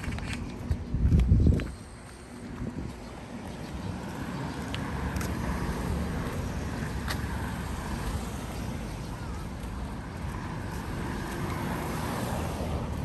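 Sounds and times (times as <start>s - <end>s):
faint distant voices: 8.6s - 10.7s.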